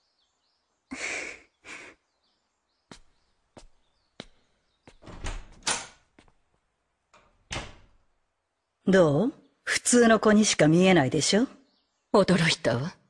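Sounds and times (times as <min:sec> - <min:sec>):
faint bird chirps: 0:00.0 - 0:05.1.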